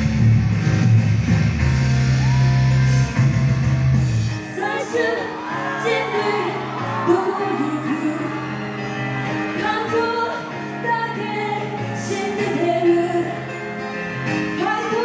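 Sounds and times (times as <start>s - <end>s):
live pop music with heavy bass: 0.0s - 15.0s
woman singing into microphone: 4.5s - 8.5s, 9.5s - 13.6s, 14.6s - 15.0s.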